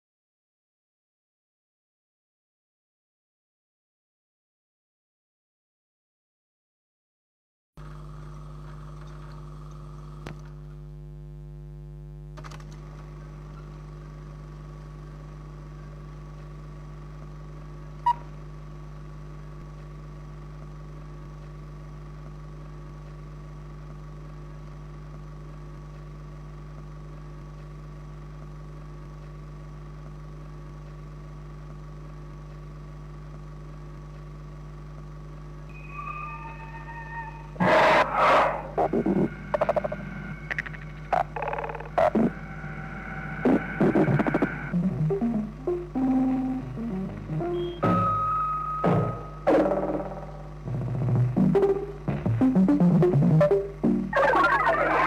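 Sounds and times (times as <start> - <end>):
low hum with hiss: 7.8 - 55.0
short high notes: 35.7 - 40.3.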